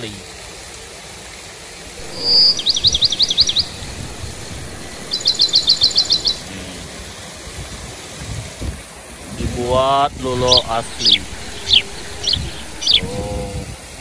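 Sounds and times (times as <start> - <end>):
songbird singing: 2.0 - 6.6, 10.2 - 13.4.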